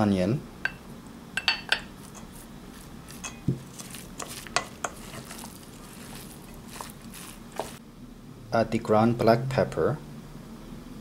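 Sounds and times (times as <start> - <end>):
wooden spoon stirring wet filling: 1.7 - 7.8.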